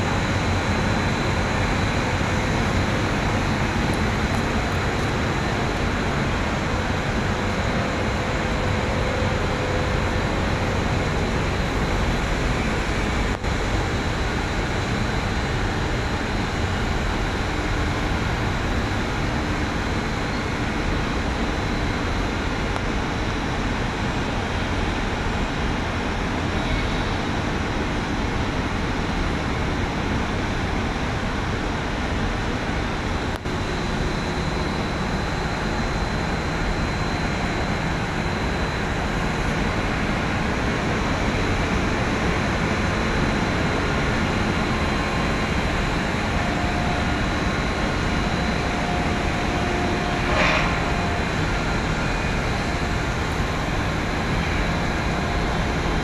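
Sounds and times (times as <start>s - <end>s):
cargo discharge machinery din: 38.8s - 56.0s.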